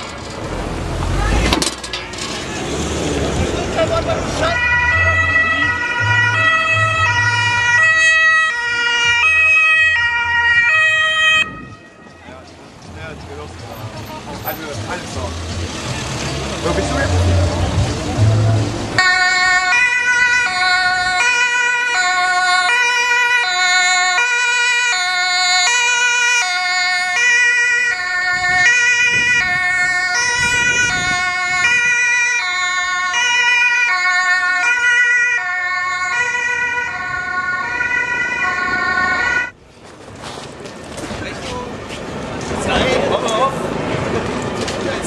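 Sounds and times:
two-tone ambulance siren: 4.4s - 12.2s, 18.3s - 39.6s.

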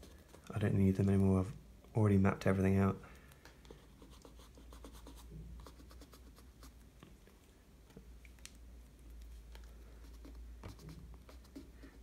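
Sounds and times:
eraser rubbing on paper: 10.0s - 12.0s.

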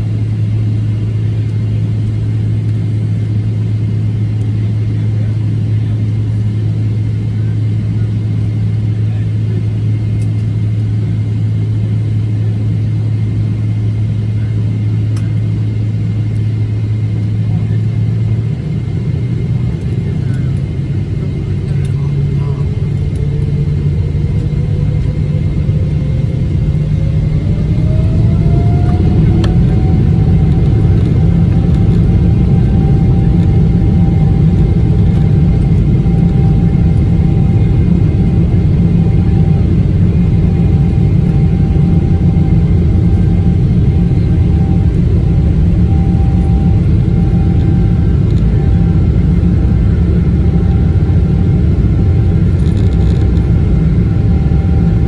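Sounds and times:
jet engines spooling up: 19.0s - 55.0s.

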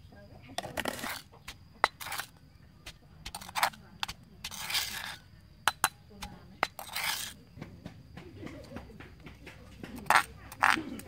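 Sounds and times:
metal spoon scraping mortar: 0.5s - 7.5s, 9.8s - 11.0s
stone pestle knocking mortar: 0.6s - 11.0s.

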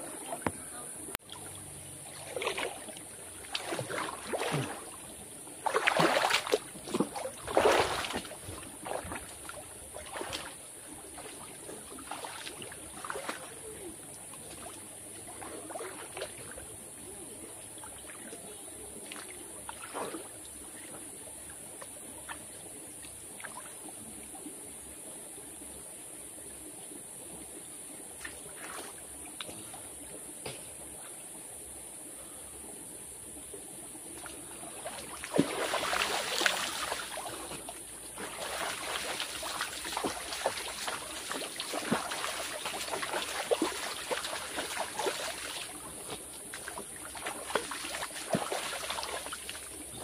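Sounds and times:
water splashing: 0.0s - 13.8s, 34.1s - 50.0s
stream running: 0.0s - 50.0s.

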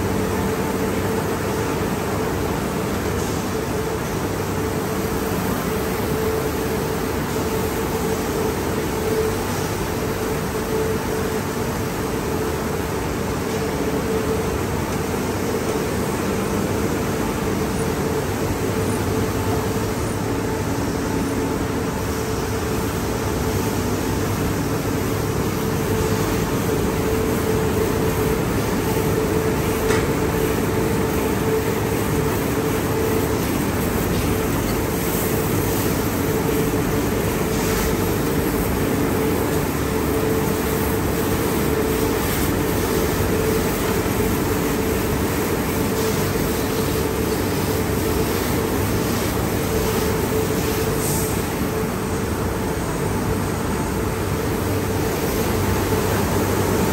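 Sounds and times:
hum of pumps and motors: 0.0s - 56.9s
high-pressure water spray: 20.7s - 51.8s, 54.2s - 56.9s.

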